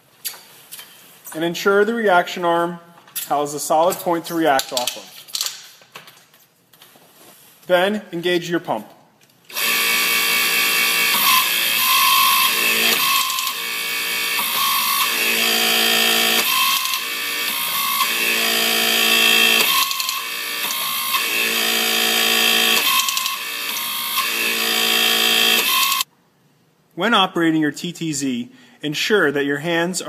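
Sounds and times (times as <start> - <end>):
hydraulic pump running: 9.5 - 26.0
torque wrench ratcheting: 9.5 - 26.0.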